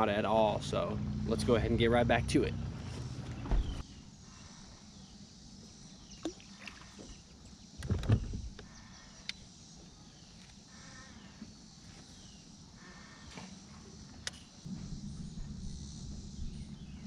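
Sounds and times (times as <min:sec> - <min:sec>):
dull thump: 0:03.3 - 0:03.8.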